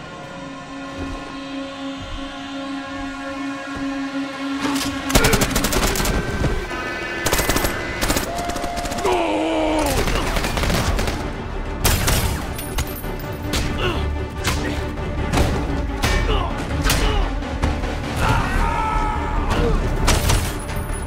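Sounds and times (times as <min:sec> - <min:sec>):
film music: 0:00.0 - 0:21.0
rapid automatic gunfire: 0:10.0 - 0:11.3.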